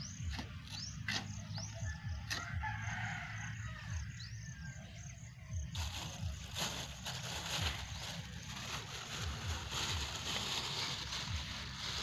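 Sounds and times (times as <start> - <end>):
rooster crowing: 1.8 - 4.1.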